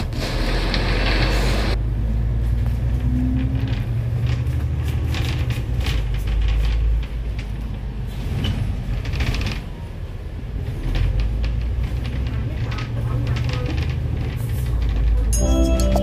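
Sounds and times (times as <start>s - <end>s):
vehicle rumbling: 0.0s - 16.0s
rattles and clicks: 3.0s - 9.7s, 10.6s - 16.0s.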